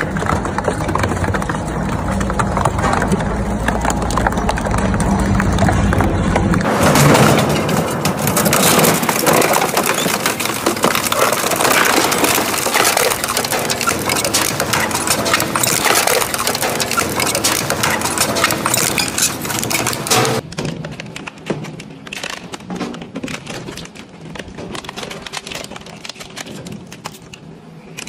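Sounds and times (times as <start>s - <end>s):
shredder crushing metal scrap: 6.6s - 20.4s.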